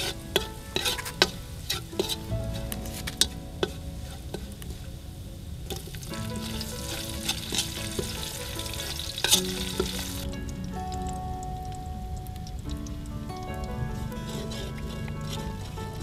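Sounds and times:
metal spoon clinking on pan: 0.0s - 2.2s
garlic sizzling in oil: 0.0s - 4.8s, 5.7s - 10.4s.

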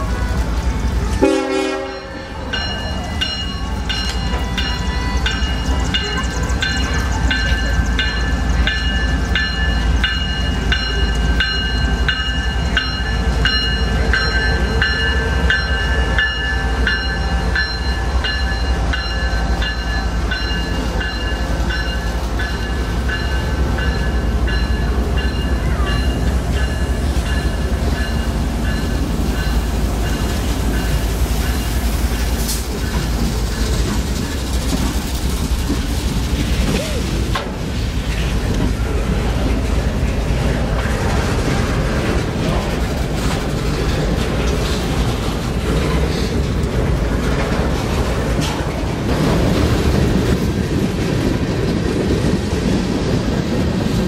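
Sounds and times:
diesel locomotives rumbling: 0.0s - 54.0s
train cars rolling over rails: 0.0s - 54.0s
bell ringing: 1.8s - 31.7s.

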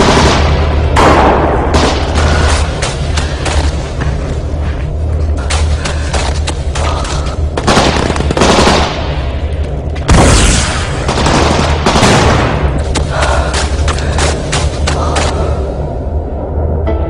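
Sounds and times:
steady low hum: 0.0s - 17.0s
rapid gunfire: 7.6s - 9.2s, 10.2s - 13.3s.

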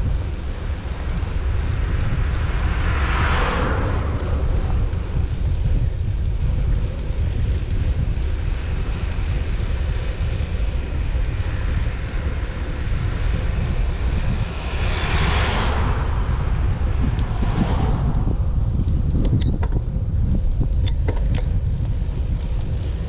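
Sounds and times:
wind rumbling on microphone: 0.0s - 23.0s
car passing by: 0.8s - 5.5s, 13.9s - 18.8s.

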